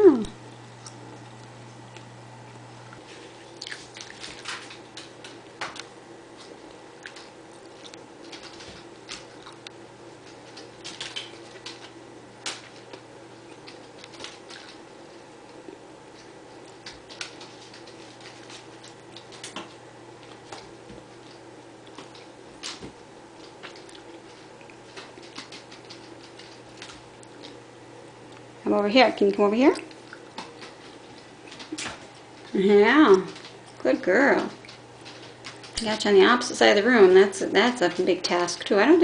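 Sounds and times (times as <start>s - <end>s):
steady low hum: 0.0s - 39.0s
kitten tapping and scratching on floor: 21.9s - 27.0s.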